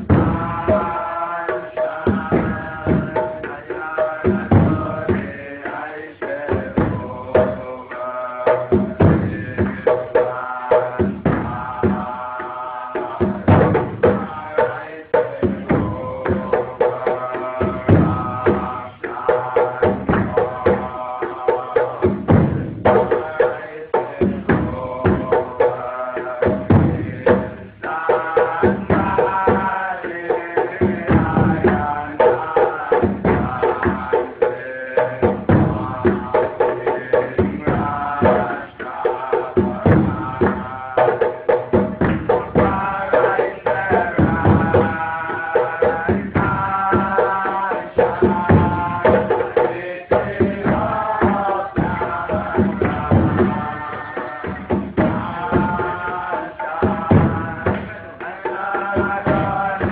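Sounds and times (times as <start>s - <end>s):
hand drums beating: 0.0s - 59.9s
voices chanting together: 0.0s - 59.9s.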